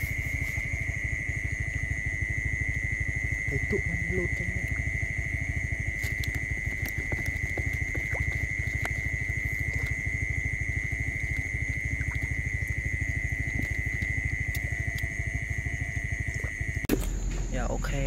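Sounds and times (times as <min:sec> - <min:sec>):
high-pitched whine: 0:00.0 - 0:08.1
hands splashing in muddy water: 0:05.8 - 0:10.2.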